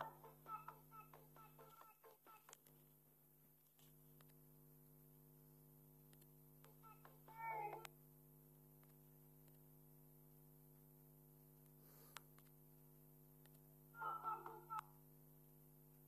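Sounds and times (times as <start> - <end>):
faint wavering pitch sounds: 0.0 - 2.4
low electrical hum: 0.0 - 16.0.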